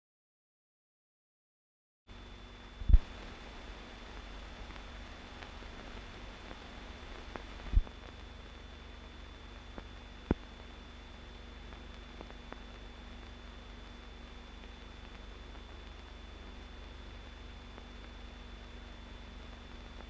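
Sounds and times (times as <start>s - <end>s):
film soundtrack hiss and hum: 2.1s - 20.0s
faint ticks: 9.7s - 10.7s.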